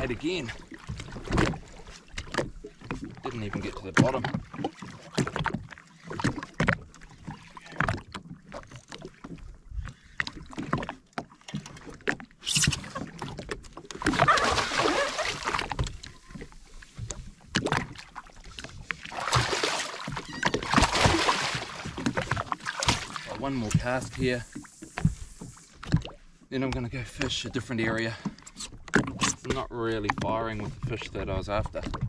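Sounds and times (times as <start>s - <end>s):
water slapping against hull: 0.0s - 32.0s
rushing splashing water: 14.0s - 16.3s, 17.6s - 25.6s.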